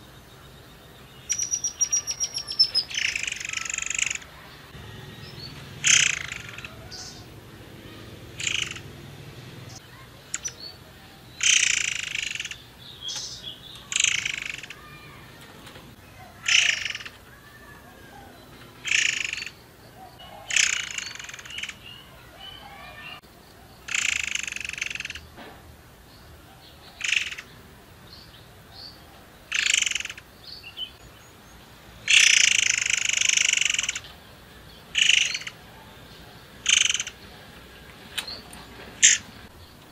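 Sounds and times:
songbird calling in short bursts: 1.2s - 4.3s, 34.9s - 35.6s.

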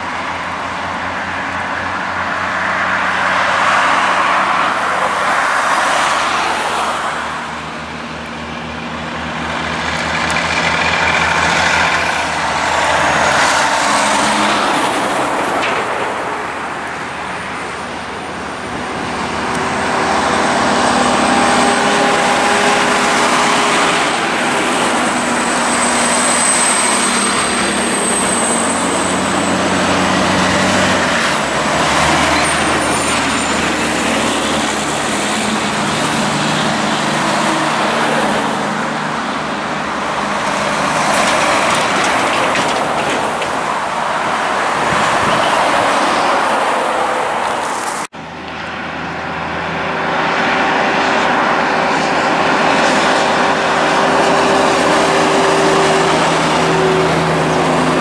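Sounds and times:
cars passing on highway: 0.0s - 58.0s
diesel trucks passing: 0.0s - 58.0s.

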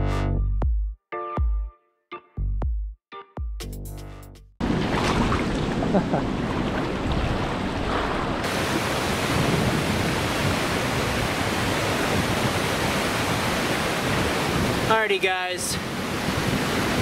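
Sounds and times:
water rushing over rocks: 4.6s - 17.0s.

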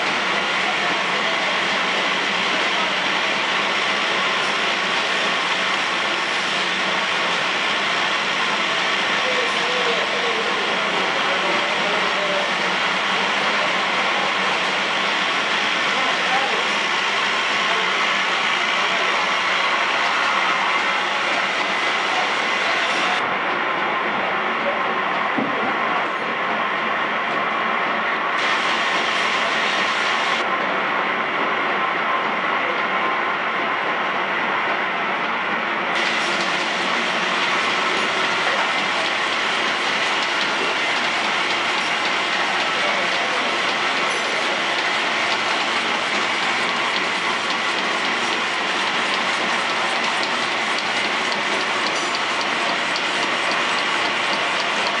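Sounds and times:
packing machinery clatter: 36.0s - 55.0s.

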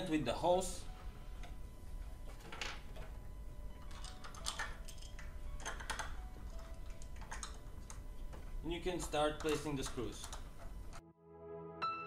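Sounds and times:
metal parts clicking and tapping: 3.8s - 8.0s, 8.9s - 11.0s.

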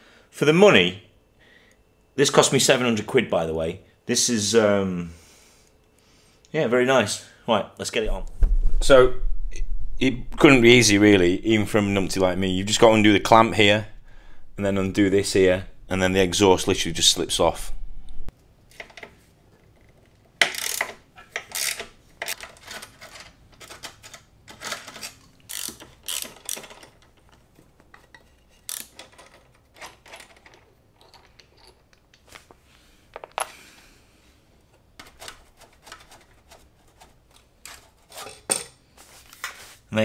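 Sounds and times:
ratchet wrench clicking: 20.5s - 20.9s, 21.6s - 21.8s, 25.5s - 26.7s, 28.7s - 29.0s
metal tools clinking: 28.7s - 32.3s.

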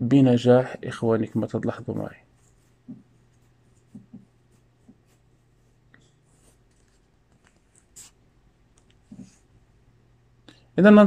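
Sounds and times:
faint low hum: 0.0s - 11.0s
computer mouse clicks and rubs: 2.0s - 5.3s, 5.9s - 9.5s.

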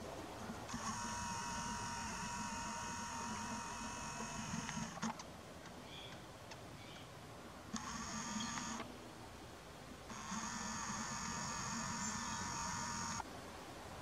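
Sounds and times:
zoom motor whining: 0.7s - 5.2s, 7.7s - 8.9s, 10.1s - 13.2s.

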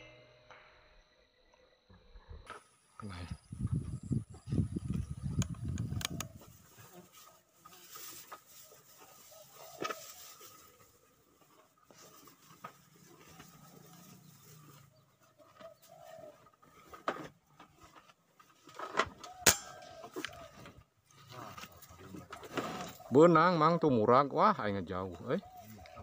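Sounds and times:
faint bird calls: 13.3s - 17.0s, 25.2s - 26.0s.

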